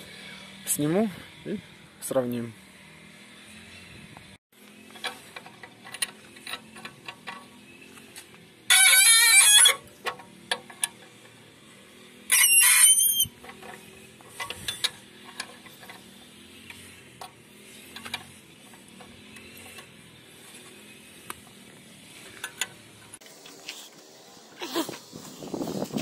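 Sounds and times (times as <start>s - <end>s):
high squeak: 8.7s - 9.8s, 12.3s - 13.4s
ratchet wrench clicking: 12.3s - 19.9s.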